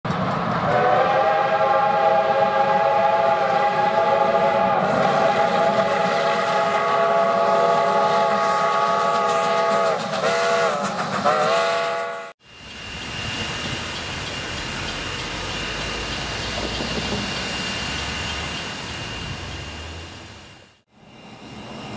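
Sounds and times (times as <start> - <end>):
steam locomotive whistle: 0.6 - 12.4
locomotive low rumble: 12.7 - 20.8.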